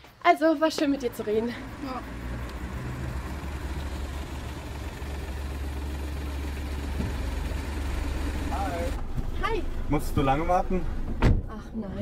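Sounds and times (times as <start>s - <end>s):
car engine idling: 0.7s - 11.2s.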